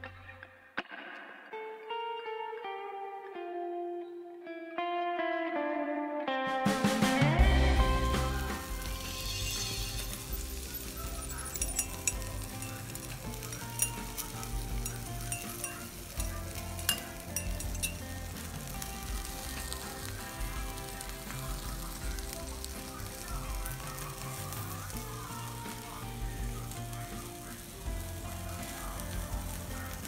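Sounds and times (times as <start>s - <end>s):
instrumental background music: 0.0s - 30.0s
crackling sizzle: 6.9s - 30.0s
spoon clinking in a mug: 11.0s - 18.1s.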